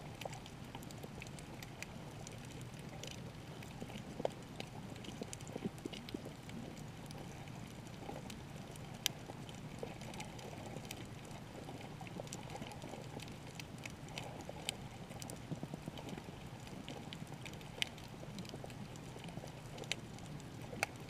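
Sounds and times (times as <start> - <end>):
muffled underwater rumble: 0.0 - 21.0
sharp clicks and crackles: 0.0 - 21.0.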